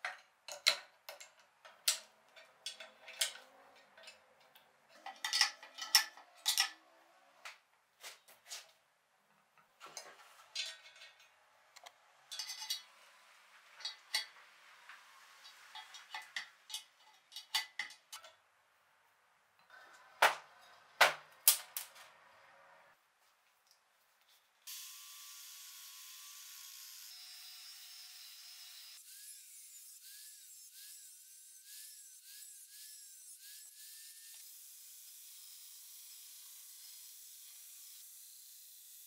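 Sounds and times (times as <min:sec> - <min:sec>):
metal clanks: 0:12.3 - 0:12.9.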